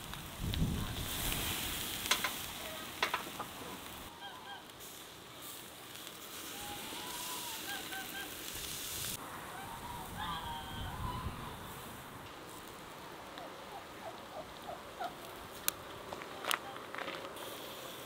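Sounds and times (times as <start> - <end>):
charcoal grill hissing: 0.0 - 18.0
metallic clicks of grill basket: 2.0 - 3.6
geese honking: 3.6 - 4.8, 6.5 - 8.5, 9.4 - 11.7.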